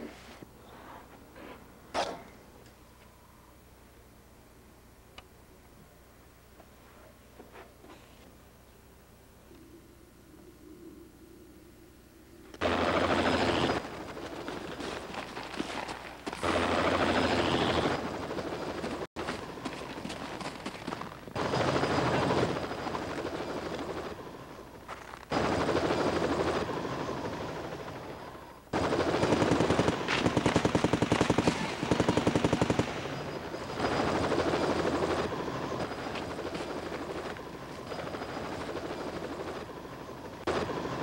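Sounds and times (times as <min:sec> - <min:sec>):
helicopter rotor: 0:12.5 - 0:41.0
machine-gun fire bursts: 0:12.6 - 0:15.7, 0:16.3 - 0:19.4, 0:20.3 - 0:24.2, 0:28.7 - 0:35.4.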